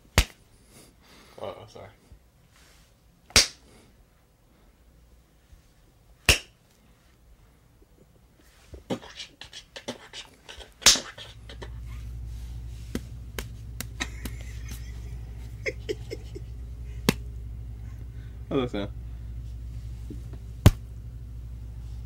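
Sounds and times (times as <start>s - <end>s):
low steady hum: 0.0s - 22.0s
hand smacking sweet potato: 0.2s - 0.4s, 12.9s - 14.8s, 17.0s - 17.3s, 20.6s - 20.9s.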